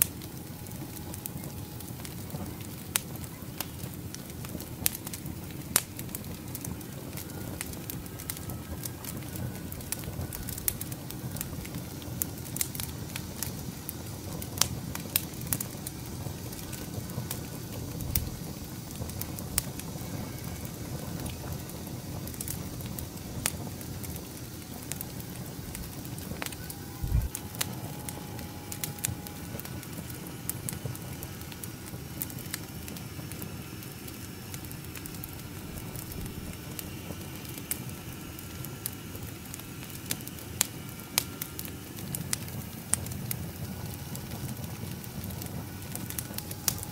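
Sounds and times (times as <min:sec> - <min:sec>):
wood fire crackling: 0:00.0 - 0:46.9.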